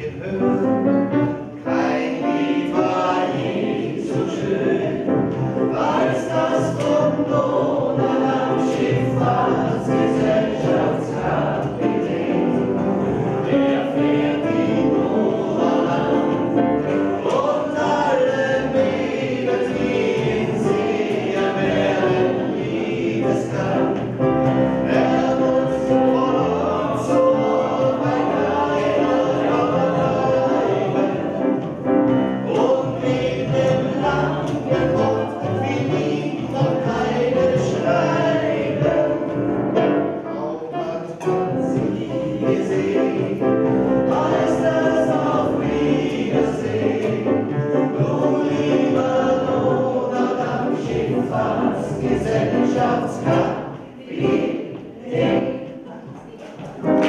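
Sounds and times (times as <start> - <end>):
piano: 0.0 - 57.0
voices singing together: 0.0 - 57.0
double bass: 4.0 - 40.4.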